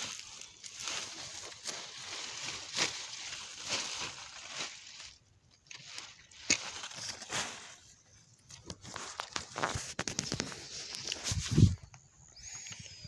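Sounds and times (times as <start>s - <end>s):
leaves and stems rustling and tearing: 0.0s - 7.9s.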